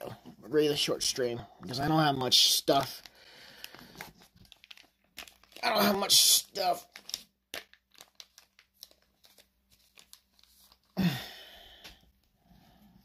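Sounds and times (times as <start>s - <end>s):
foil wrapper crinkling: 1.8s - 11.0s
foil pack ripping open: 3.0s - 11.0s.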